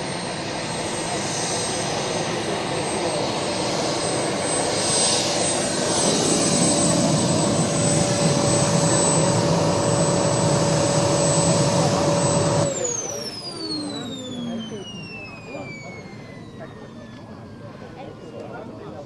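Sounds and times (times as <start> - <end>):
model jet turbine whining: 0.0 - 19.0.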